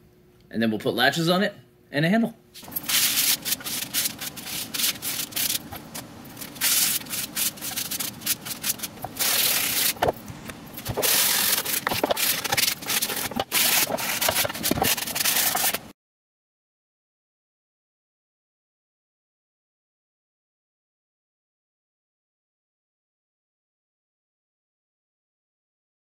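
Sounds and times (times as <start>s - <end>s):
sanding sponge rasping on wood: 2.8s - 5.7s, 6.4s - 10.0s, 10.9s - 15.8s.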